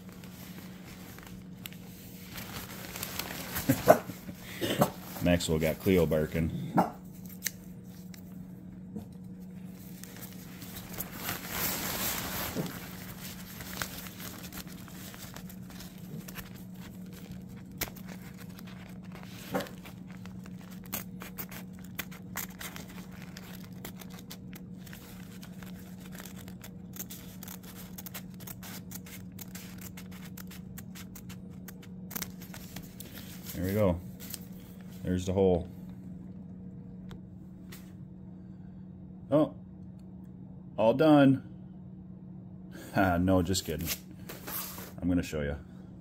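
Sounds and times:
fabric crinkling: 0.0 - 6.3, 9.3 - 35.1
steady low hum: 0.0 - 46.0.

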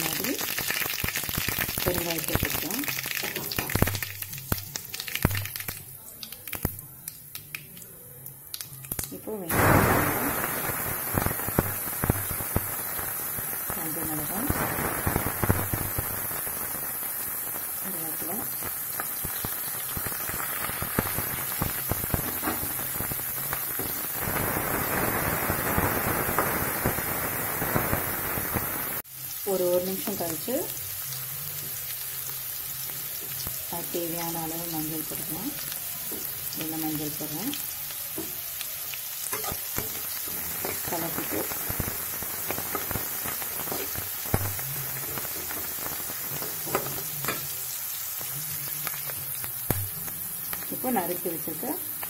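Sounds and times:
sizzling with crackles and pops: 0.0 - 52.0.

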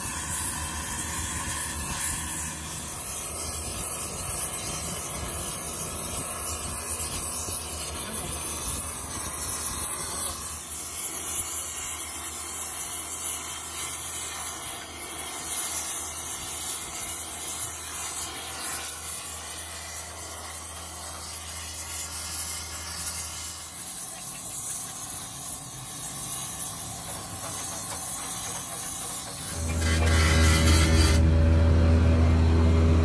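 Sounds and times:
gas torch flame hissing: 0.0 - 31.3
low hum: 29.5 - 33.0.

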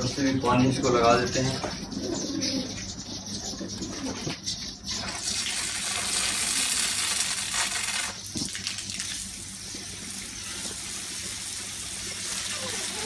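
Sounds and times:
hose water spraying: 4.9 - 13.0.

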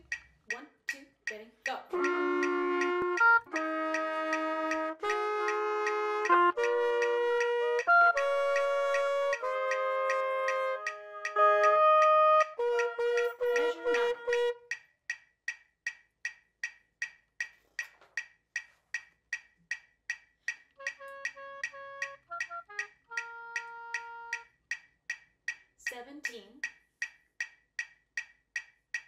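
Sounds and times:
wood-block clicks: 0.0 - 29.0
held melody notes: 1.9 - 14.7, 20.8 - 24.5.

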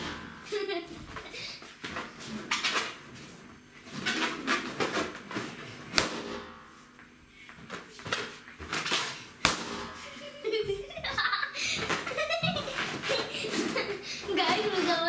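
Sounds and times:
balloons popping: 8.7 - 10.0.

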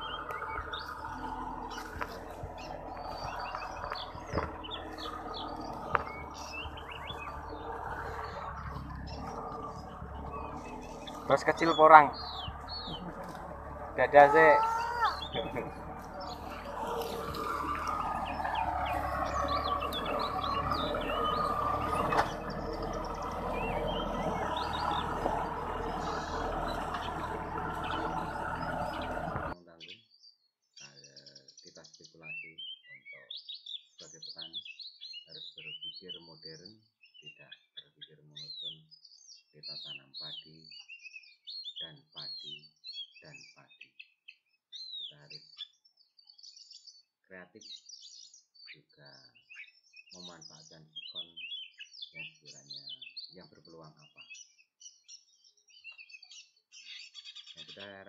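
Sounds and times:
tractor engine running: 0.0 - 29.6
birds chirping: 0.0 - 58.0.

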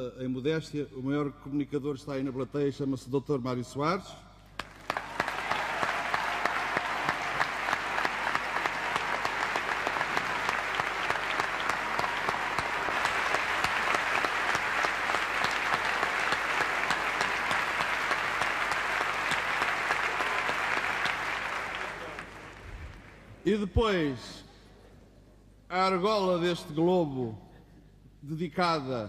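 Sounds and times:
large audience applauding: 4.6 - 23.4.

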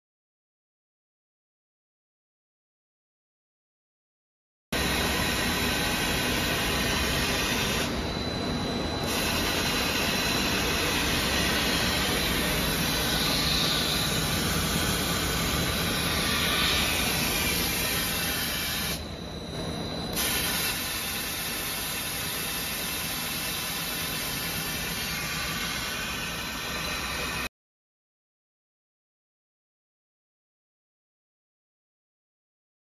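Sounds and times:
faint high whine: 4.8 - 27.5
cutting machine hissing: 9.0 - 19.1, 20.0 - 27.5.

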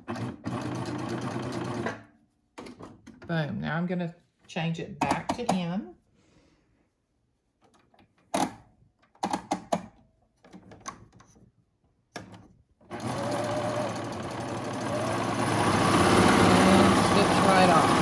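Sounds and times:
serger sewing machine running: 0.0 - 1.9, 12.9 - 18.0.

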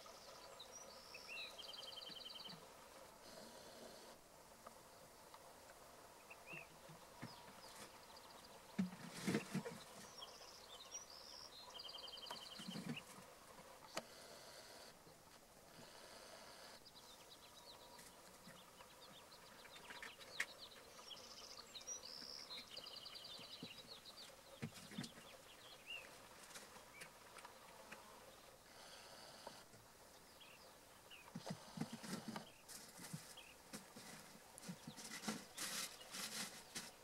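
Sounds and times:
soft ticks and rustles: 6.5 - 10.3, 23.4 - 28.1, 31.2 - 37.0.

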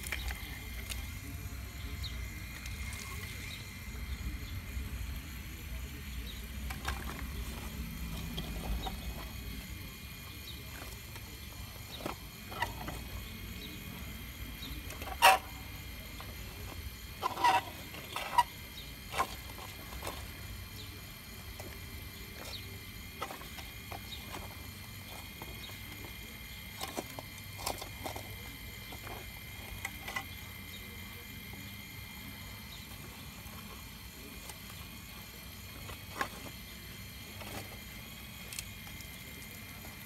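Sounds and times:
rocks clicking and clacking: 0.0 - 1.2.

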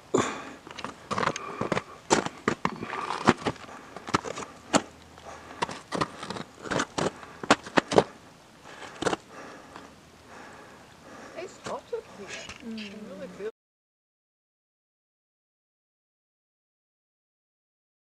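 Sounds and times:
footsteps crunching on ice: 0.8 - 8.1.

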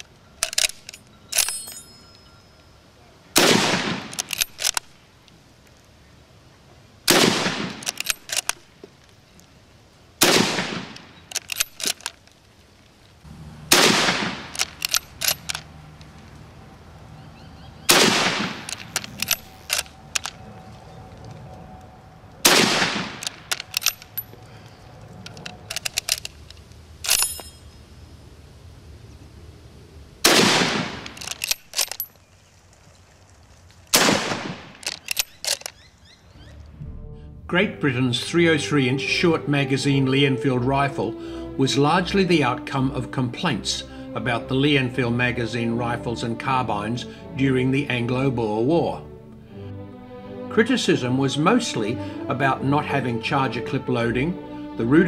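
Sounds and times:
metallic clicks of rifle bolt: 0.0 - 1.9, 3.9 - 5.4, 7.6 - 9.5, 10.6 - 12.5, 13.9 - 16.2, 18.2 - 20.4, 22.5 - 24.4, 25.1 - 27.6, 30.5 - 32.2, 33.9 - 35.9
rifle shots: 3.4 - 4.8, 7.1 - 8.5, 10.2 - 12.1, 13.7 - 15.7, 17.9 - 20.3, 22.4 - 24.2, 30.2 - 32.0, 33.9 - 35.7.

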